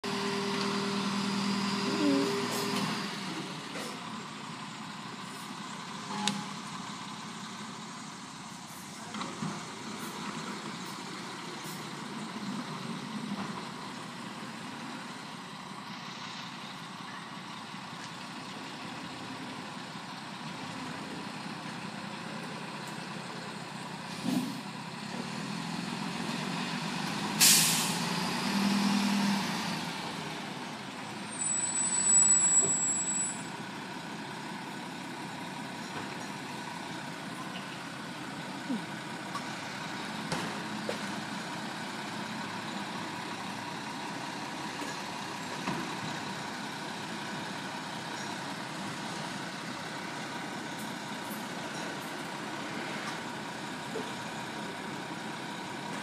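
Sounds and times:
diesel engine running: 0:00.0 - 0:56.0
air brake hiss: 0:24.1 - 0:24.6, 0:27.4 - 0:28.0
brief high squeal: 0:31.4 - 0:33.5.

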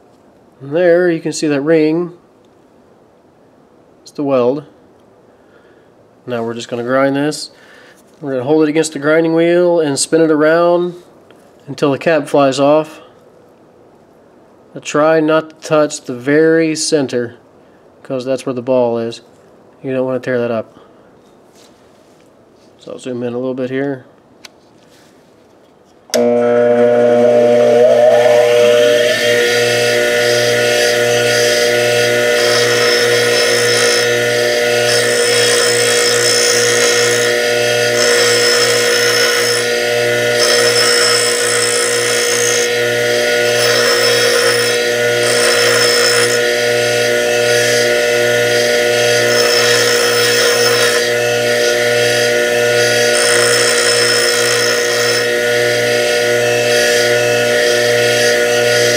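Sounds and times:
bench grinder motor humming: 0:26.1 - 0:58.9
metal grinding rasping hiss: 0:27.6 - 0:58.9.

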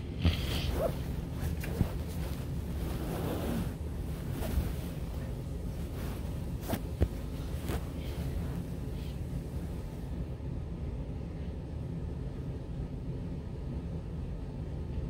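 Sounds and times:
low microphone rumble: 0:00.0 - 0:10.4.

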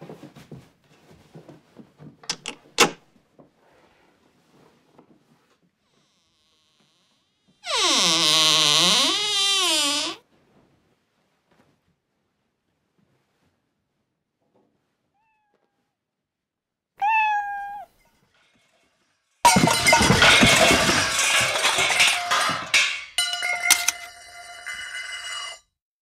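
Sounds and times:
cat meow: 0:15.2 - 0:15.9, 0:17.0 - 0:18.0
metallic ringing and rattling: 0:18.2 - 0:25.6
furniture crashing over: 0:19.4 - 0:25.6.

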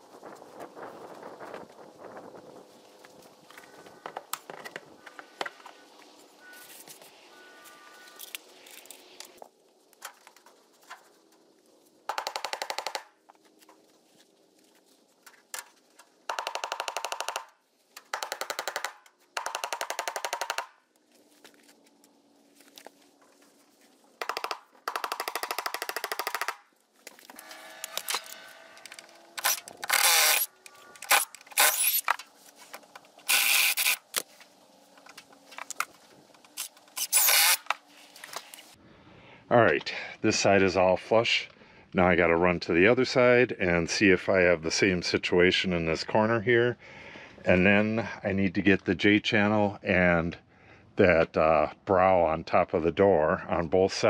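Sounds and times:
power drill bit chattering: 0:29.4 - 0:32.2, 0:33.2 - 0:34.2, 0:36.6 - 0:37.8.

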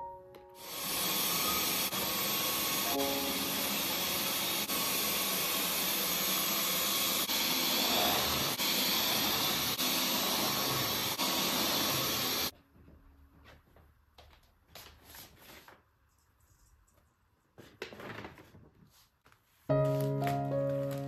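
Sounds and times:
stick vacuum running: 0:00.6 - 0:12.5.

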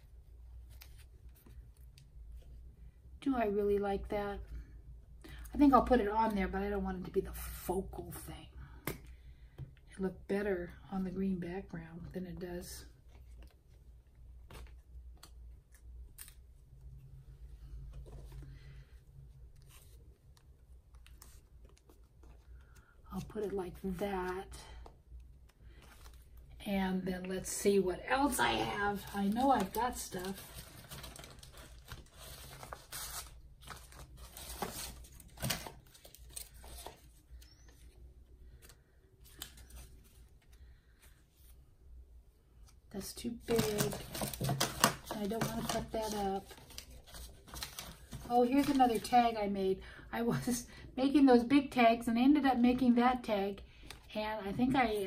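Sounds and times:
paper rustling: 0:28.5 - 0:38.0, 0:43.4 - 0:49.2.

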